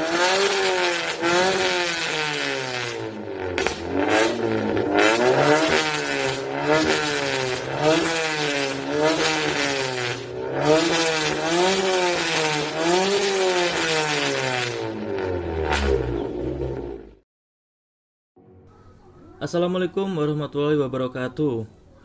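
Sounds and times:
car engine revving: 0:00.0 - 0:17.2.

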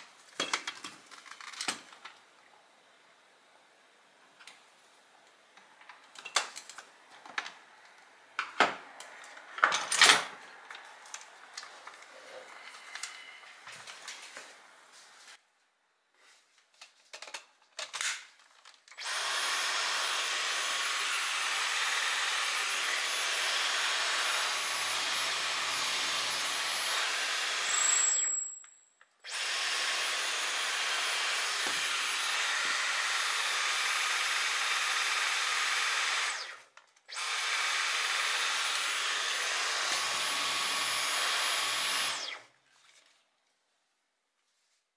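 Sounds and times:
vacuum cleaner whine: 0:19.0 - 0:28.4, 0:29.2 - 0:42.5.

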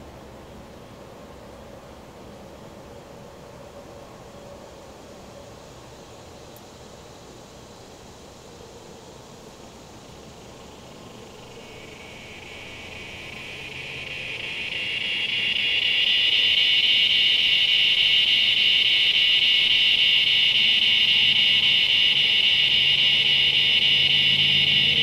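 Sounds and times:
distant traffic rumble: 0:00.0 - 0:25.0
cicada buzzing: 0:05.6 - 0:25.0.

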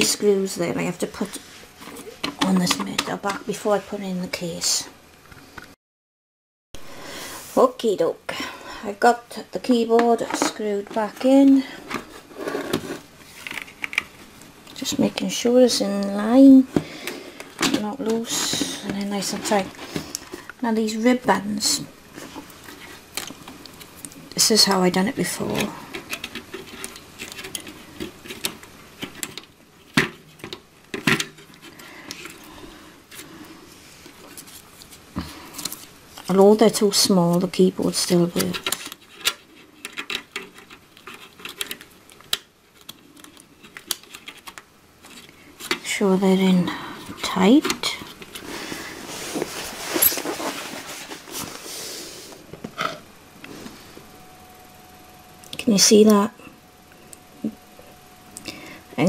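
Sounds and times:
cable rustling: 0:09.9 - 0:15.0, 0:22.1 - 0:33.4, 0:38.1 - 0:46.0, 0:47.0 - 0:51.8.

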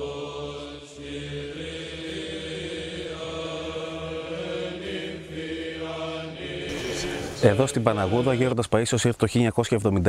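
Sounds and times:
slow chanting: 0:00.0 - 0:08.6
steady low drone note: 0:05.8 - 0:08.5.

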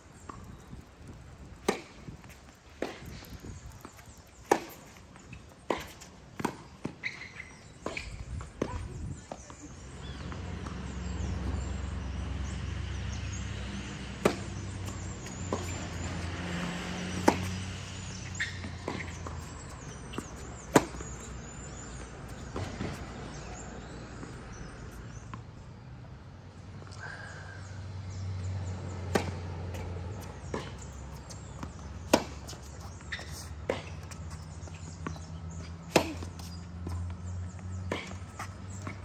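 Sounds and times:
tennis ball struck by racket: 0:00.4 - 0:08.8, 0:13.9 - 0:24.8, 0:29.0 - 0:37.0
ball bouncing on hard court: 0:14.2 - 0:24.3.

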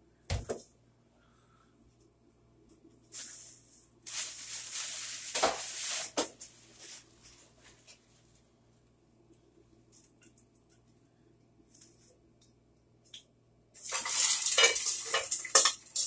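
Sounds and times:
plastic bag rustling: 0:03.2 - 0:08.4, 0:13.8 - 0:16.0.

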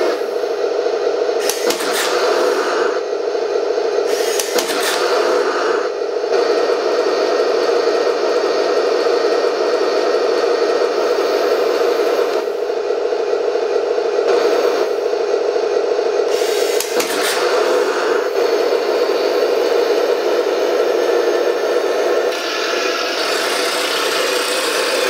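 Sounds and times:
model tank rasping mechanical whir: 0:16.3 - 0:25.0.

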